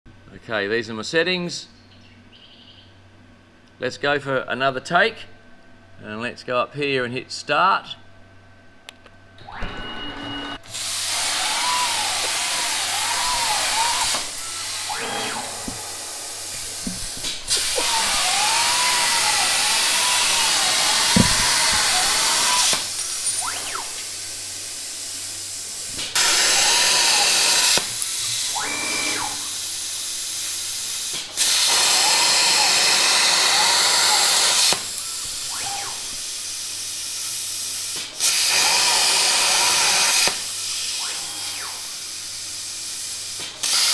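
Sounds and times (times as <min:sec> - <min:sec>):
motors whining: 0:09.4 - 0:36.5, 0:38.2 - 0:42.4
plasma cutter hissing arc: 0:10.7 - 0:33.4, 0:34.6 - 0:43.9.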